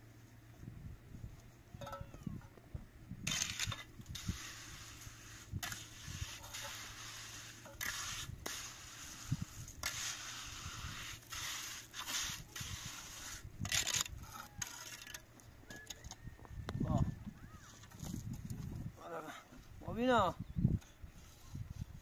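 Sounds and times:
trowel scraping mortar: 3.2s - 16.0s.

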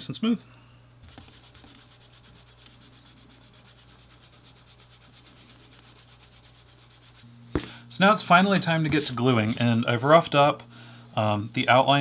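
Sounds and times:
cloth rubbing leather: 1.0s - 7.3s.

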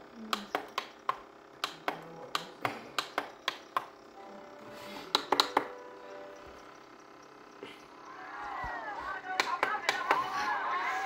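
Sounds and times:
plastic button clicks: 5.1s - 5.7s.

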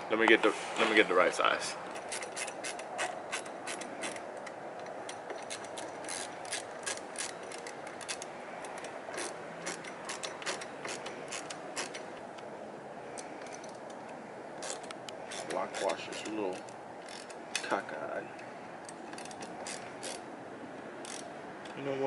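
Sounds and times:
hand ratchet clicking: 1.9s - 12.2s, 14.6s - 17.8s, 18.4s - 20.2s, 21.0s - 21.8s.

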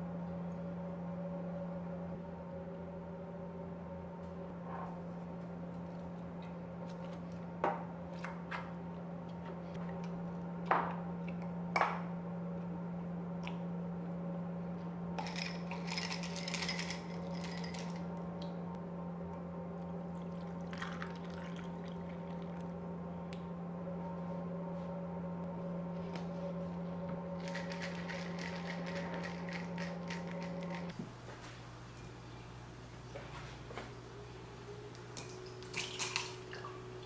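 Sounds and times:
steady low hum: 0.0s - 37.0s
ice cubes clattering into jar: 15.2s - 18.0s, 27.4s - 30.8s
liquid pouring: 20.2s - 22.6s.

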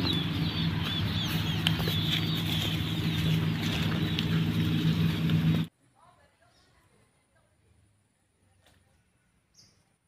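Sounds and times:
steady low hum: 0.0s - 5.7s
small birds chirping: 0.0s - 7.4s, 8.1s - 10.0s.

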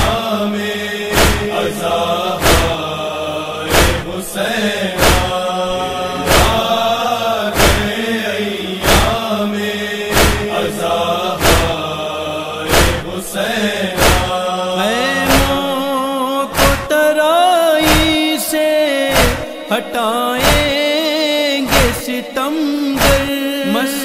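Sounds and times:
person chanting a lament: 0.0s - 24.0s
steady beat: 6.3s - 6.7s.

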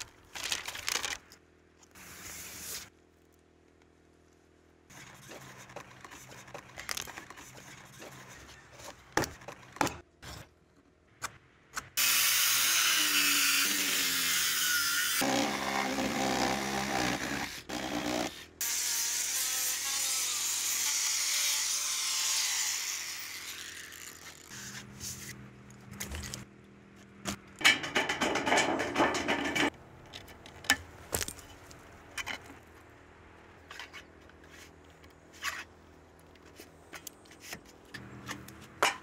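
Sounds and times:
saw cutting wooden beam: 12.0s - 24.7s
knocks and handling sounds: 24.8s - 32.9s.

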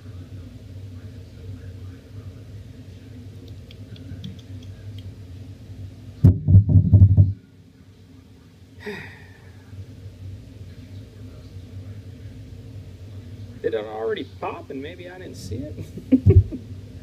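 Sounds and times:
hand knocking on tabletop: 6.3s - 7.4s.

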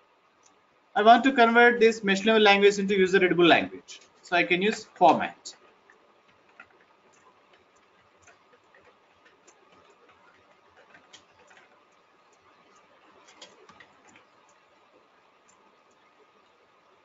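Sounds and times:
computer keyboard typing: 3.8s - 17.0s.

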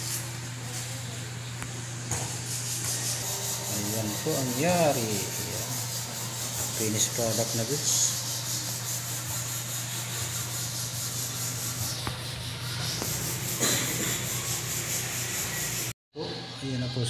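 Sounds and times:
scratchy rubbing noise: 2.3s - 15.9s.

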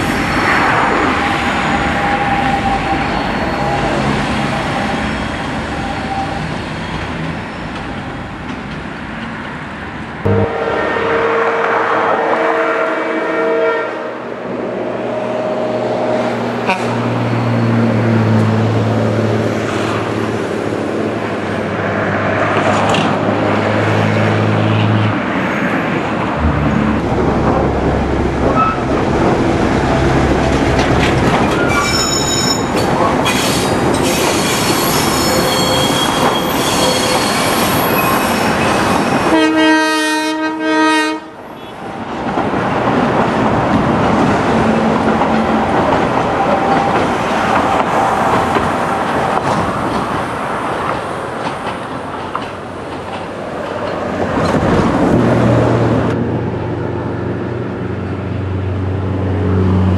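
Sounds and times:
diesel locomotive drone: 0.0s - 59.9s
high-pitched wheel squeal: 1.6s - 7.6s, 31.4s - 39.2s
train horn blast: 10.3s - 14.3s, 16.6s - 17.0s, 39.2s - 41.7s
train wheels clacking over rail joints: 42.2s - 55.2s.

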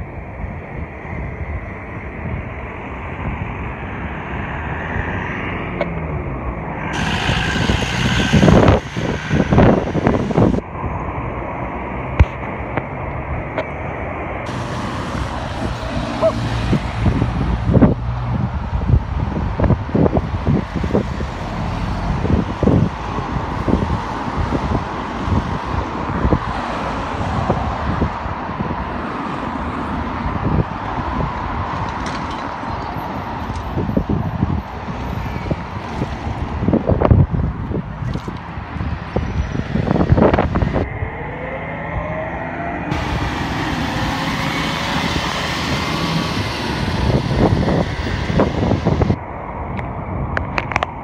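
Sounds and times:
wind buffeting microphone: 0.0s - 11.4s, 14.4s - 51.0s
road traffic passing: 0.0s - 51.0s
tyres rushing on tarmac: 5.8s - 10.6s
car engine pulling away: 6.8s - 10.6s, 41.6s - 49.2s.

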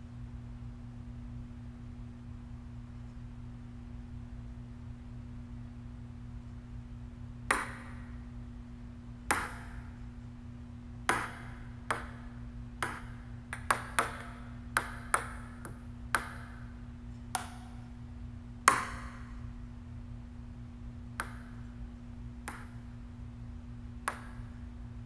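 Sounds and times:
steady low hum: 0.0s - 25.0s
ping-pong ball clicks: 7.5s - 8.0s, 9.3s - 9.9s, 11.0s - 16.7s, 17.3s - 17.8s, 18.7s - 19.3s, 21.2s - 21.7s, 22.4s - 22.9s, 24.0s - 24.6s.

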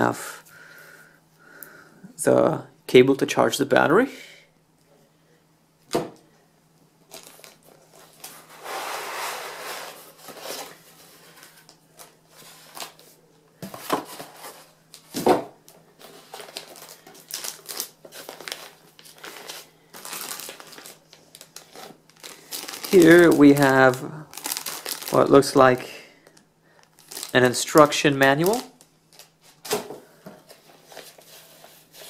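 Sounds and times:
packaging rustling and crinkling: 7.1s - 15.2s, 16.0s - 32.0s.

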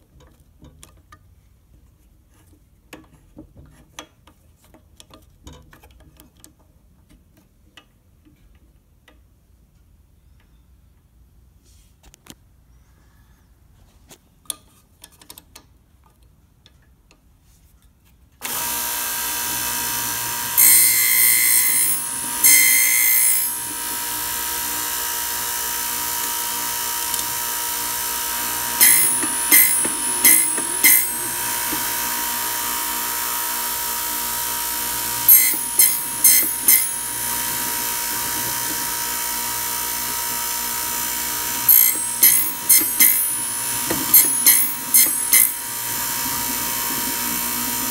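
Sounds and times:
cutter grinding key blank: 18.4s - 47.9s
key-cutting machine motor: 18.4s - 47.9s.

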